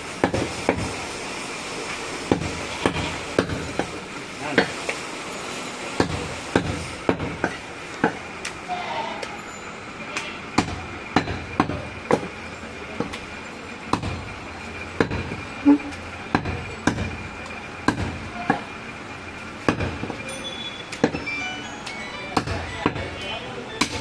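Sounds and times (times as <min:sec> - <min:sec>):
knife chopping meat and bone: 0:06.0 - 0:08.2, 0:17.9 - 0:18.6, 0:22.4 - 0:23.1.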